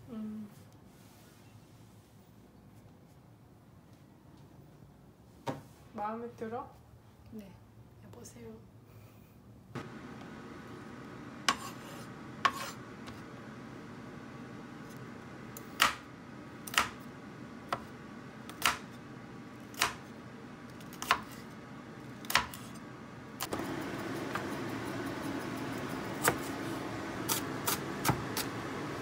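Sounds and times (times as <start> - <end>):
steady low hum: 9.6 - 29.0
knife chopping on cutting board: 11.5 - 12.8, 18.5 - 18.9, 19.7 - 20.0, 20.9 - 21.4, 22.2 - 22.7, 26.1 - 26.6, 27.3 - 28.5.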